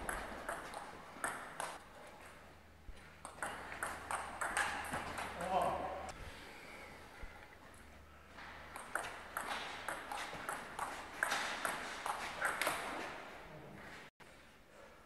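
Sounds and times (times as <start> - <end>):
table tennis ball clicking: 3.2 - 5.4.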